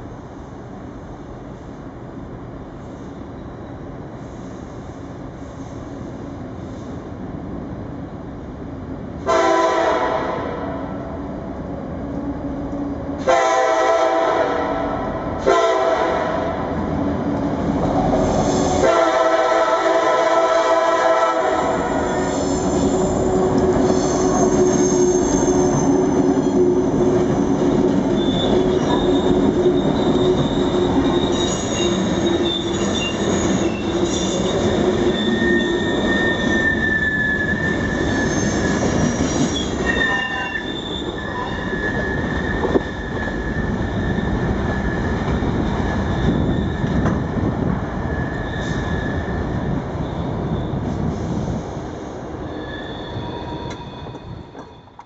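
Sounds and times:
freight train rumbling: 0.0 - 55.0
train horn blast: 9.2 - 10.9, 13.2 - 16.7, 18.8 - 22.1
metal wheels squealing: 21.9 - 47.3, 48.0 - 50.9, 52.4 - 55.0.

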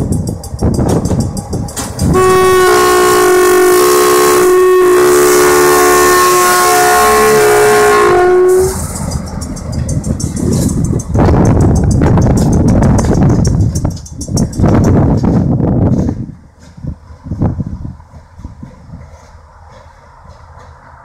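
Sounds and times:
diesel engine: 0.0 - 15.8
train wheel noise: 0.0 - 21.0
locomotive air horn blast: 2.0 - 9.0.

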